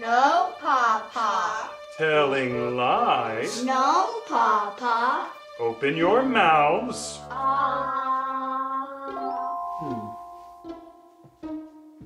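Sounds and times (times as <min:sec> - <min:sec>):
comic background music: 0:00.0 - 0:12.0
plucked string notes: 0:05.6 - 0:12.0.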